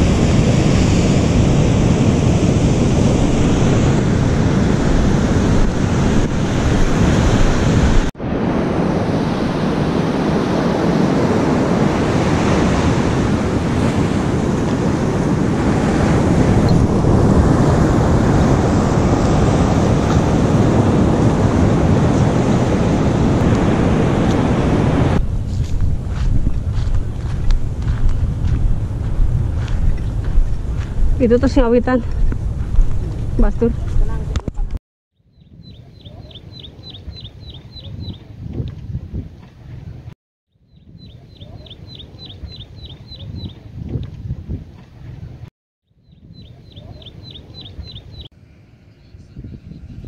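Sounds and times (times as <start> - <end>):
ocean surf breaking: 0.0 - 25.2
wind buffeting microphone: 0.0 - 34.8, 35.4 - 40.1, 40.7 - 45.5, 46.1 - 48.3, 49.0 - 50.0.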